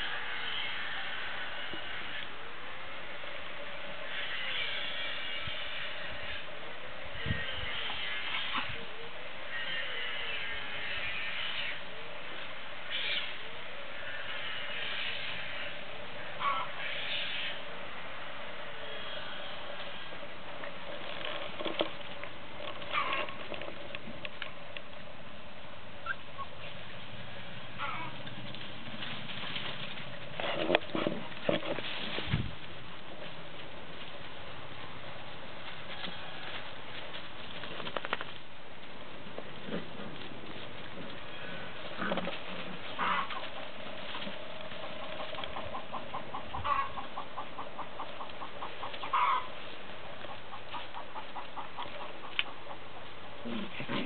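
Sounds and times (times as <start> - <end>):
knocks and rustles: 28.1 - 33.4
short chirping animal calls: 43.0 - 43.4.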